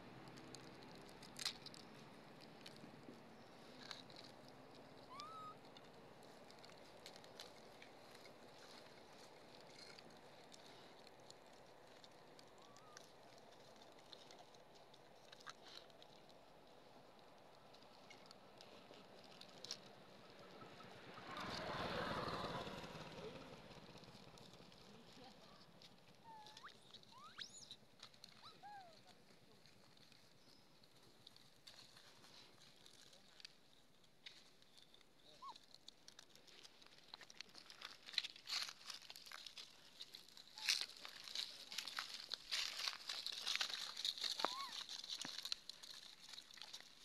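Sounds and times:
vehicle engine passing by: 0:19.4 - 0:25.8
wrapper crinkling: 0:34.4 - 0:47.0.

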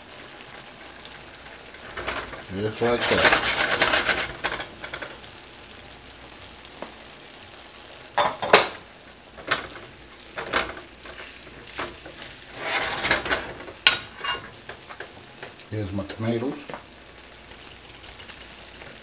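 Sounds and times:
food sizzling in a skillet: 0:00.0 - 0:19.0
tongs scraping and clacking on pan: 0:00.8 - 0:05.3, 0:09.4 - 0:15.7.

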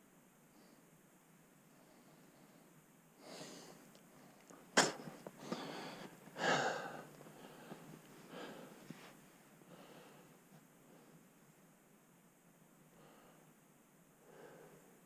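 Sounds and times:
sharp snap: 0:04.8 - 0:05.0.

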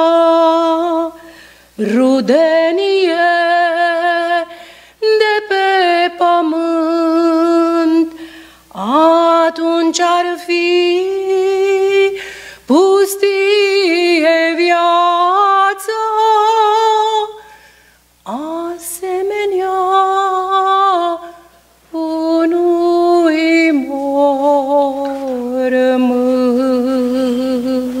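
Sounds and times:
woman singing unaccompanied: 0:00.0 - 0:17.4, 0:18.2 - 0:28.0
singer breathing: 0:01.2 - 0:01.8, 0:04.5 - 0:05.0, 0:08.2 - 0:08.7, 0:12.2 - 0:12.7, 0:17.4 - 0:18.1.

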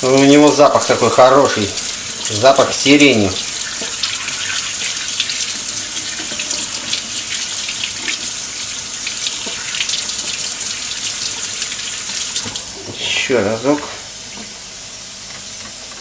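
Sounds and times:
tap water splashing into sink: 0:00.5 - 0:13.0.

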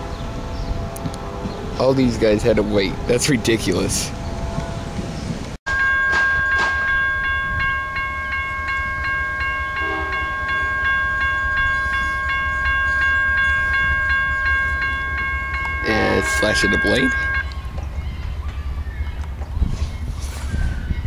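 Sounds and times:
railroad crossing bell ringing: 0:05.7 - 0:17.7.

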